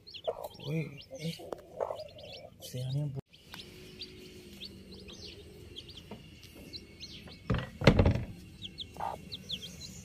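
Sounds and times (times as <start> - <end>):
chicks peeping: 0.0 - 7.5, 8.5 - 10.0
loud thump: 7.5 - 8.3.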